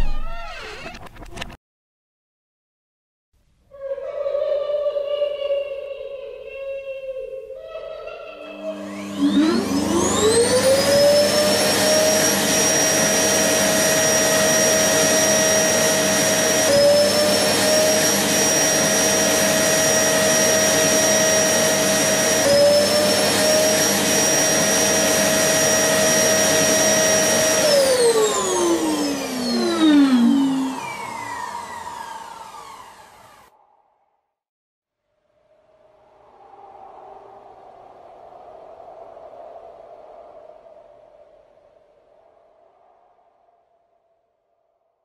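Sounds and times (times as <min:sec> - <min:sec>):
vacuum cleaner motor whine: 0:08.4 - 0:33.5.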